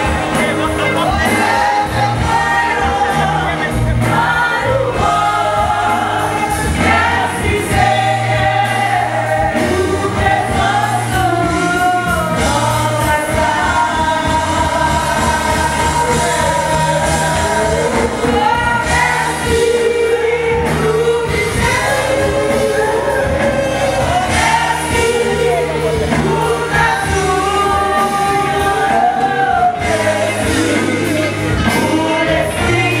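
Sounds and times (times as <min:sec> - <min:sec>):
brass band sustained notes: 0:00.0 - 0:33.0
congregation singing a hymn: 0:00.0 - 0:33.0.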